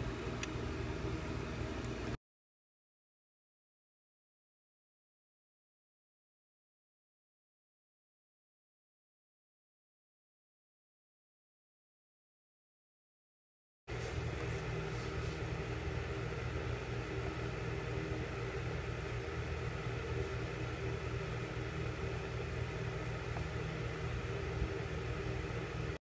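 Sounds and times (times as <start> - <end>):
electric fan humming: 0.0 - 2.2, 13.9 - 26.0.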